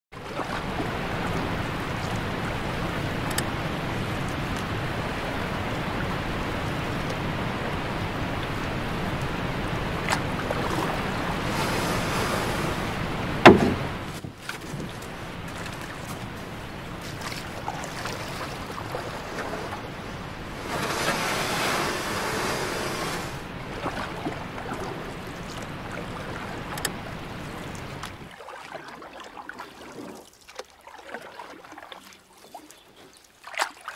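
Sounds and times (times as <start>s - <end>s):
creek water rushing over rocks: 0.2s - 30.2s
sharp knock: 13.4s - 13.8s.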